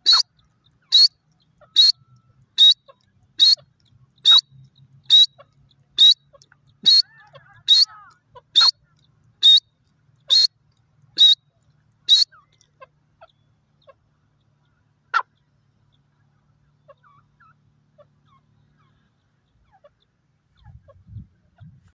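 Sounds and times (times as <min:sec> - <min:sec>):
bird calling sharply: 0:00.0 - 0:14.0.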